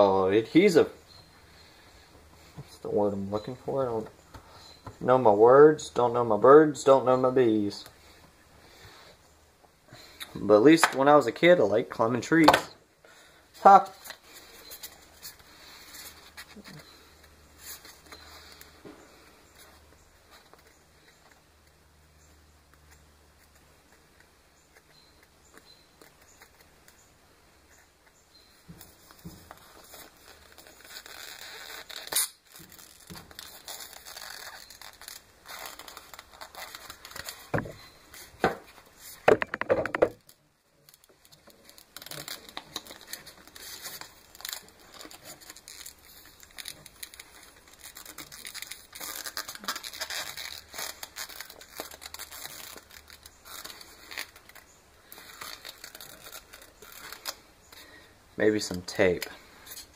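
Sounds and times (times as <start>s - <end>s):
rustling and crinkling: 0.4s - 59.9s
knocks and rattles on wood: 39.2s - 40.2s.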